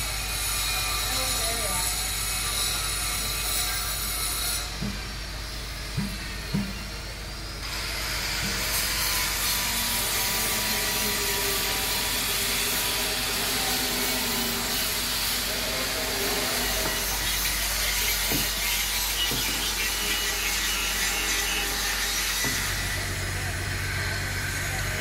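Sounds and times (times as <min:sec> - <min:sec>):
power tool grinding stone: 0:00.0 - 0:06.9, 0:07.6 - 0:25.0
knock: 0:06.0 - 0:06.8, 0:18.3 - 0:18.5.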